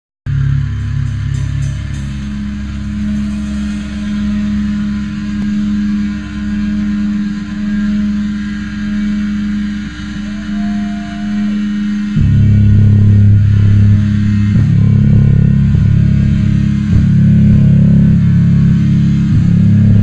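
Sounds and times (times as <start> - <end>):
electric guitar droning note: 0.3 - 20.0.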